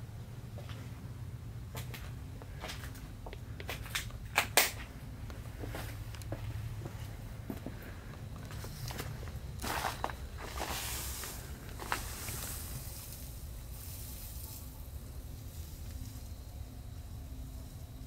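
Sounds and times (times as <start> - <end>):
soft rustling hiss: 0.0 - 18.0
steady low rumble: 0.0 - 18.0
footsteps crunching on debris: 1.7 - 13.3.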